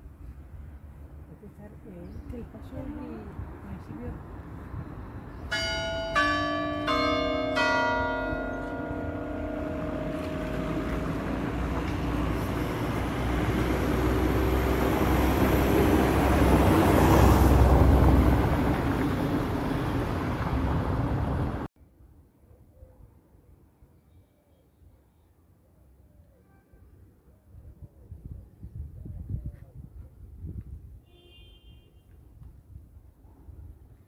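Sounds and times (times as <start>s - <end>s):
church bells ringing: 5.5s - 14.5s.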